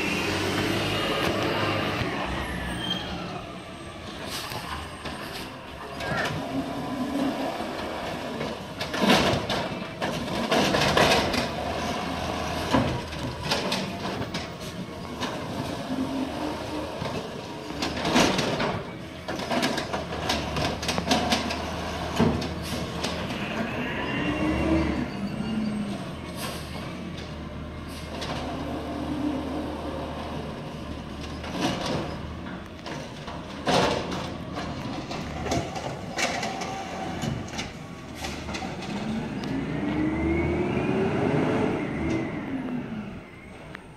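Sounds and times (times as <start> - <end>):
hydraulic whines: 22.6 - 26.9.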